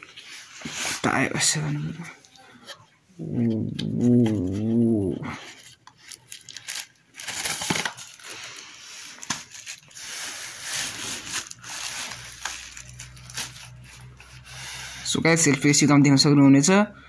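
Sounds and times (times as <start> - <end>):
drawn-out vocal sound: 3.2 - 5.5
plastic wrapping crinkling: 5.4 - 14.9.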